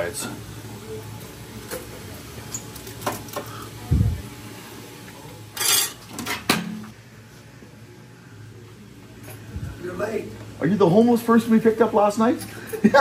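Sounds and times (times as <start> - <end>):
dishes and cutlery clattering: 5.6 - 6.7.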